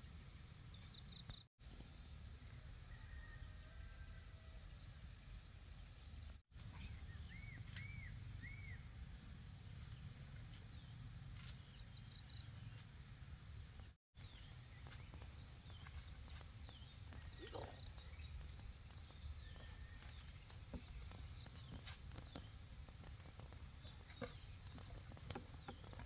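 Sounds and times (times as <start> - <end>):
bird chirping: 5.1 - 8.9, 9.8 - 26.0.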